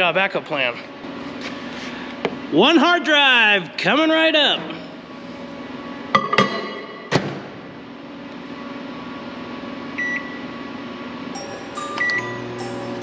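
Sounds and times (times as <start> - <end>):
short keypad beep: 11.8 - 12.4.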